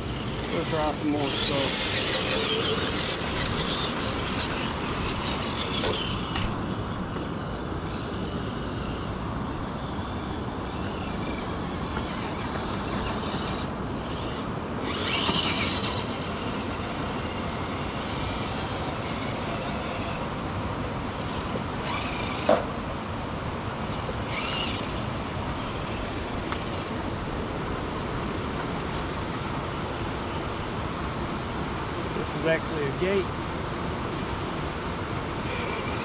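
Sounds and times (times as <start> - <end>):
electric motor whining: 0.0 - 23.1, 23.8 - 27.8, 34.4 - 36.0.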